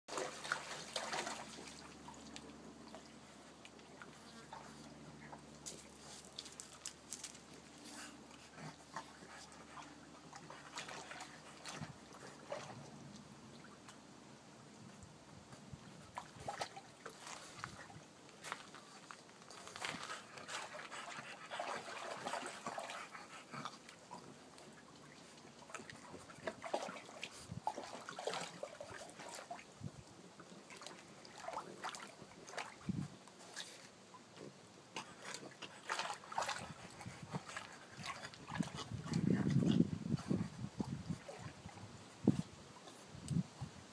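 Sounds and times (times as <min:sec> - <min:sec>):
faint splashes and drips: 0:00.1 - 0:14.1, 0:14.9 - 0:43.4
water sloshing and splashing: 0:00.1 - 0:14.1, 0:15.6 - 0:43.4.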